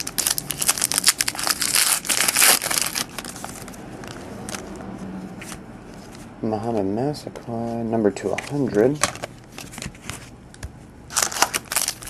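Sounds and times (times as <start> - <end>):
wrapper tearing and crinkling: 0.0 - 3.7, 11.1 - 12.0
cards rustling and clicking: 8.2 - 12.0.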